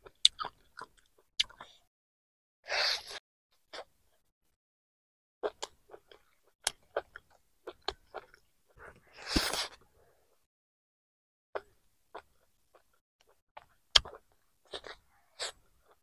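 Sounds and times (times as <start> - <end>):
person chewing food: 0.0 - 1.8, 5.4 - 9.9, 11.6 - 16.0.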